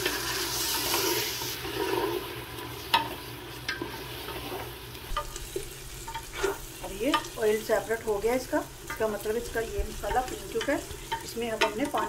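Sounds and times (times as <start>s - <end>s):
wooden spatula scraping pot: 0.0s - 7.4s
food sizzling in oil: 0.0s - 12.0s.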